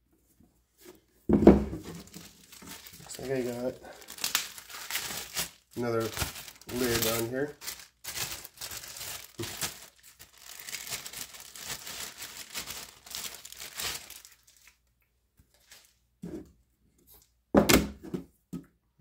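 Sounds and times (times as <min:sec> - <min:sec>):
plastic bag crinkling: 0:01.8 - 0:14.9, 0:15.5 - 0:16.0.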